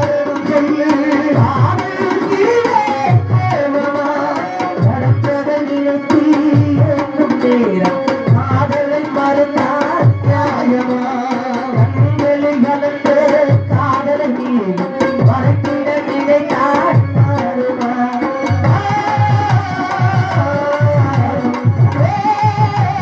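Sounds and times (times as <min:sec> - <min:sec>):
man singing a folk lament: 0:00.0 - 0:23.0
hand drum beat: 0:06.1 - 0:23.0.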